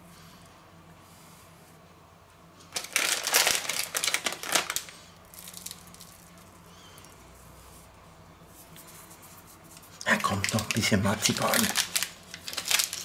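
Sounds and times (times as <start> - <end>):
plastic packet crinkling: 2.7 - 6.6, 10.0 - 13.0.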